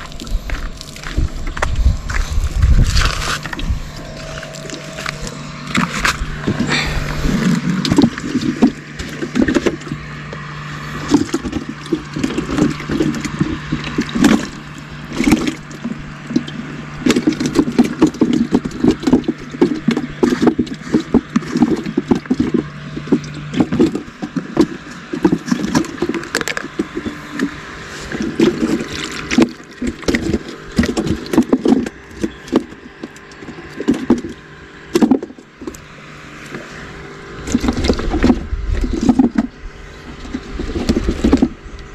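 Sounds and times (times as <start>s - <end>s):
steady low hum: 0.0s - 41.9s
water glugging and splashing: 0.0s - 41.9s.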